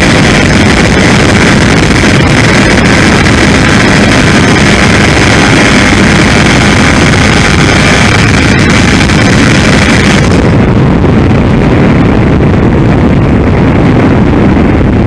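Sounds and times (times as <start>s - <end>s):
electric motor whine: 0.0s - 11.9s
wind rush on microphone: 0.0s - 15.0s.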